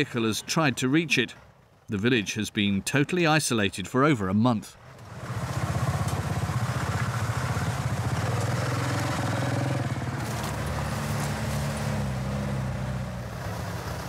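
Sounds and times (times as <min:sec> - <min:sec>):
truck engine running: 0:04.9 - 0:14.0.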